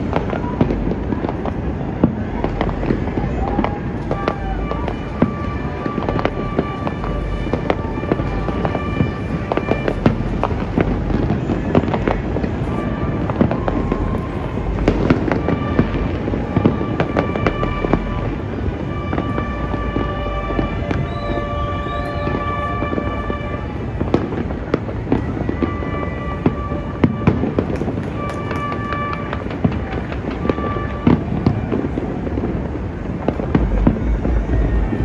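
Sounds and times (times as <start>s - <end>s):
distant fireworks crackling: 0.0s - 35.0s
low rumble: 32.8s - 35.0s.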